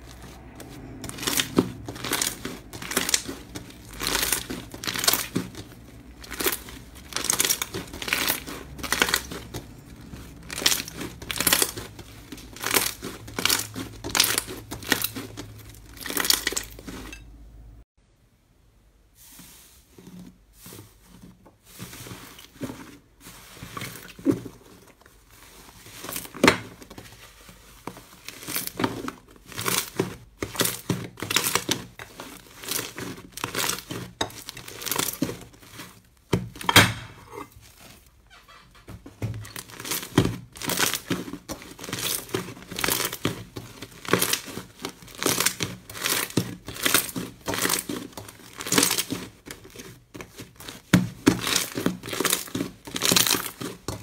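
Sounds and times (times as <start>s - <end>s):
slime crackling and popping: 0.0s - 17.0s, 28.2s - 37.1s, 39.4s - 54.0s.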